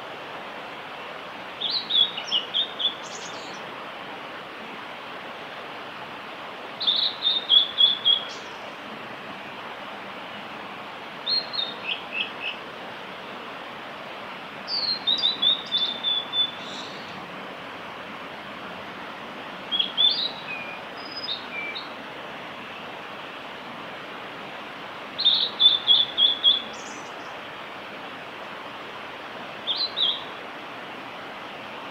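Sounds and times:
steady hiss: 0.0 - 31.9
bird singing whistled notes: 1.6 - 3.6, 6.8 - 8.6, 11.2 - 12.6, 14.7 - 17.2, 19.7 - 21.9, 25.2 - 27.4, 29.6 - 30.4.

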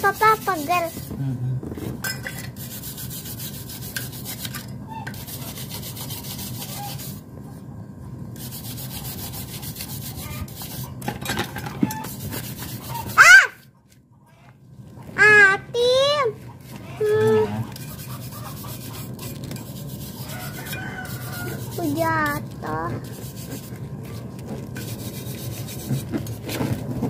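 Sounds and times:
scrubbing on an engine: 8.4 - 13.2, 16.4 - 27.0
child crying out: 13.2 - 13.6, 17.0 - 17.6.

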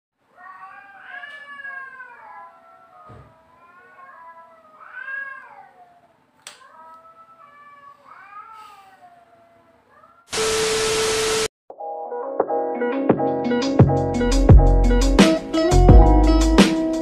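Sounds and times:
cat meowing: 0.3 - 10.4
tv static with steady tone: 10.3 - 11.5.

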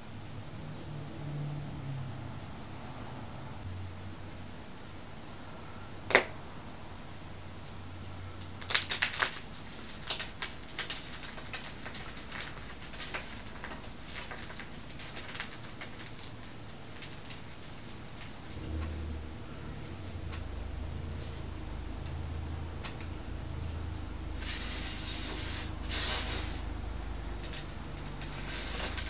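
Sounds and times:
powder crunching in hands: 8.4 - 18.8
soft crumbling crackles: 8.4 - 29.0.

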